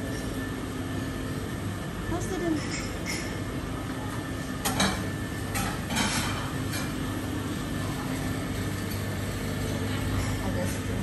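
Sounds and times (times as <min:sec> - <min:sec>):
dishes and utensils clinking: 0:02.4 - 0:03.5, 0:04.6 - 0:07.0, 0:09.9 - 0:11.0.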